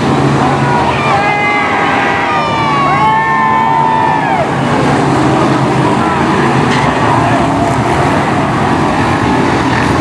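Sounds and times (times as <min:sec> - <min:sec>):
racing car engines roaring: 0:00.0 - 0:10.0.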